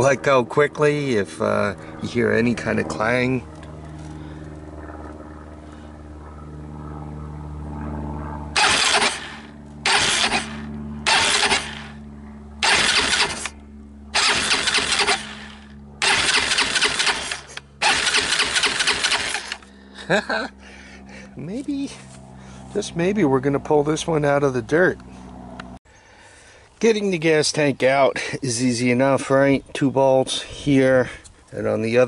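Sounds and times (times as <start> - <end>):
electric starter cranking engine: 8.6 - 12.0, 12.6 - 19.7.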